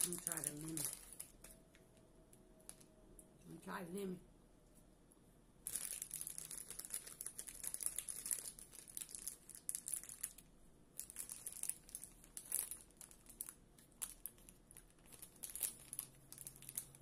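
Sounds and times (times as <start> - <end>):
plastic snack bag crinkling: 0.0 - 1.8, 2.6 - 2.9, 5.6 - 17.0.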